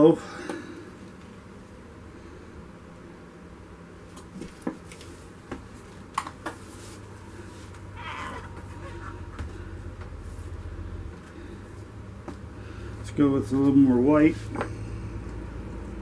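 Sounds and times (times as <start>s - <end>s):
low hum: 7.0s - 16.0s.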